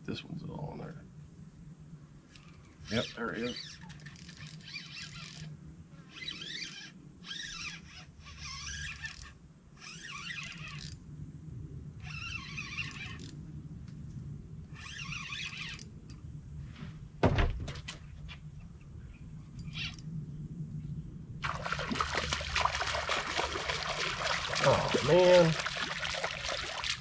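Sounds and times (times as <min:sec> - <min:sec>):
loud thump on boat: 0:17.2 - 0:17.9
turtle thrashing and splashing water: 0:21.4 - 0:27.0.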